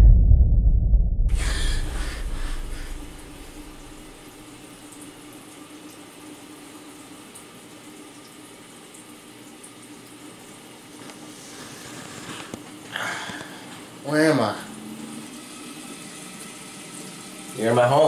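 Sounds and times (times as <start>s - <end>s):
steady hiss: 1.4s - 4.6s.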